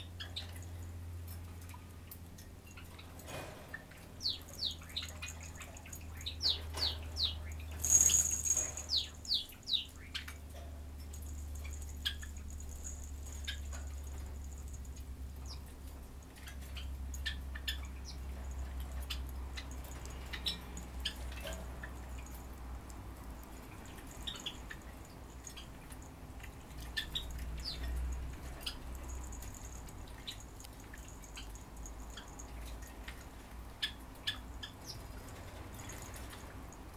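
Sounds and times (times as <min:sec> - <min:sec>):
small metal bells tinkling: 0:04.2 - 0:09.8, 0:11.0 - 0:15.6, 0:18.0 - 0:33.0, 0:34.5 - 0:36.9.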